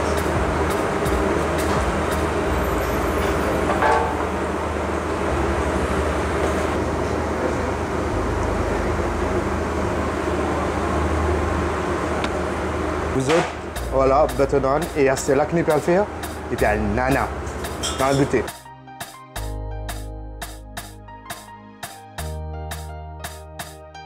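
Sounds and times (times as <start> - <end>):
extraction hood fan roaring: 0.0 - 18.6.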